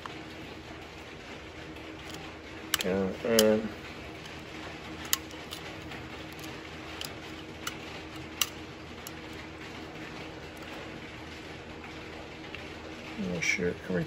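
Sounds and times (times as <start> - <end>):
magazine clicking: 5.0 - 9.2.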